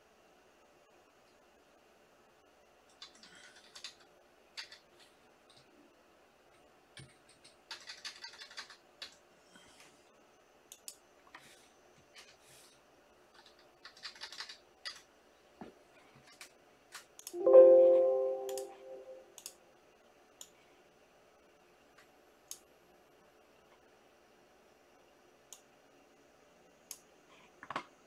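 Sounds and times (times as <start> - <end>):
faint keyboard typing: 2.9 - 5.7, 6.5 - 9.2, 13.3 - 15.1, 16.2 - 19.5.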